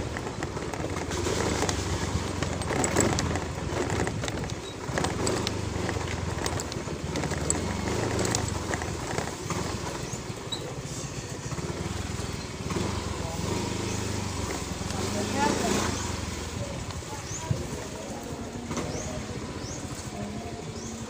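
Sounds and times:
clicks and rattles: 0:00.0 - 0:10.8
scooter engine running: 0:00.0 - 0:21.0.

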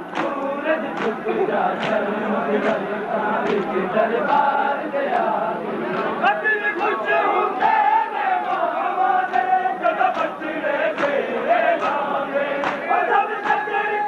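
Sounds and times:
crowd of men chanting: 0:00.0 - 0:14.0
chest-beating slaps: 0:00.1 - 0:01.2, 0:01.8 - 0:02.0, 0:11.0 - 0:11.2, 0:11.8 - 0:12.0, 0:12.6 - 0:13.6.

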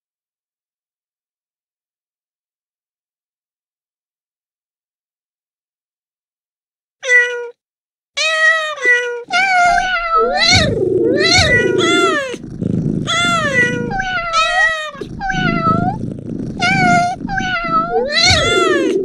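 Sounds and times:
cat meows: 0:07.0 - 0:07.6, 0:08.2 - 0:12.4, 0:13.1 - 0:16.0, 0:16.6 - 0:19.0
low rumble: 0:09.8 - 0:19.0.

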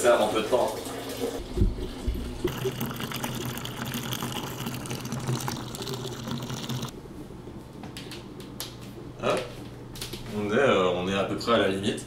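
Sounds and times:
liquid pouring into glass vessel: 0:01.7 - 0:06.9.

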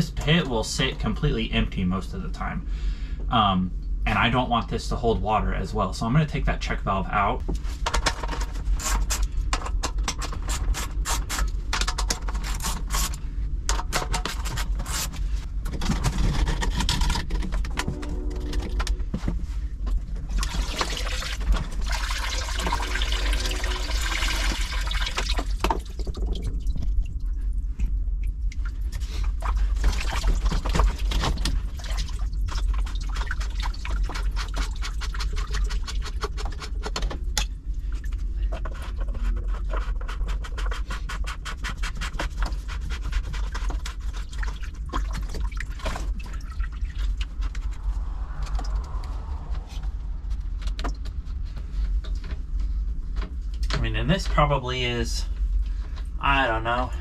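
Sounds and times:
water pouring and splashing: 0:20.2 - 0:36.7, 0:43.1 - 0:49.5.

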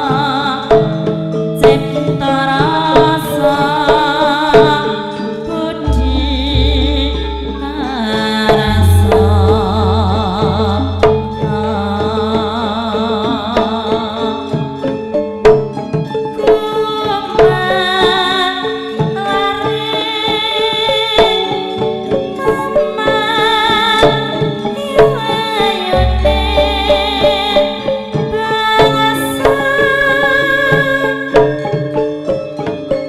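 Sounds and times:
woman singing with vibrato: 0:01.6 - 0:14.6, 0:16.5 - 0:21.6, 0:22.4 - 0:31.4
metallophones playing: 0:05.9 - 0:13.2, 0:26.0 - 0:28.3
deep low ringing tones: 0:05.9 - 0:13.3, 0:26.0 - 0:28.0
hand-drum strokes: 0:05.9 - 0:14.1, 0:25.2 - 0:29.9.

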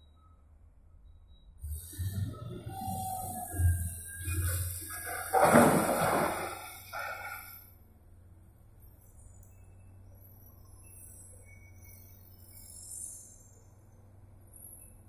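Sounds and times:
low steady hum: 0:00.0 - 0:15.0
coal falling into metal truck body: 0:04.8 - 0:07.5.

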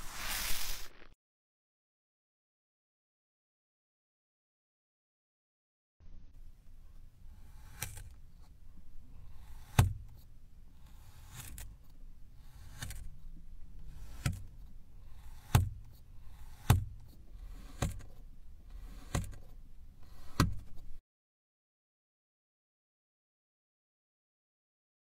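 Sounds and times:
sand scraping: 0:00.0 - 0:01.2
plastic cutter tapping: 0:09.5 - 0:10.2, 0:14.0 - 0:14.6, 0:15.2 - 0:18.2, 0:18.8 - 0:19.5, 0:20.2 - 0:20.8.

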